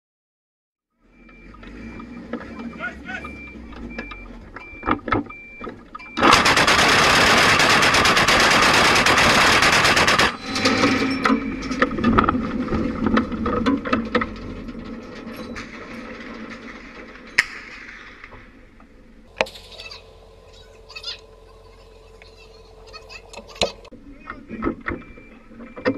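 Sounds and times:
autocannons firing rapid burst: 6.2 - 10.6
cracks and echoes: 11.8 - 19.5.

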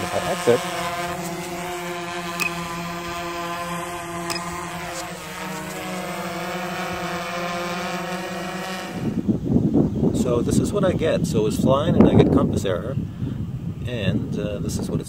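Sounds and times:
drone propellers whining: 0.0 - 10.0.

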